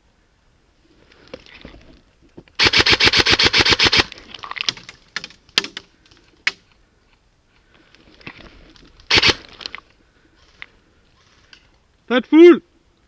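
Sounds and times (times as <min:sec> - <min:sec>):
airsoft gun automatic burst: 0:02.6 - 0:04.1, 0:09.1 - 0:09.5.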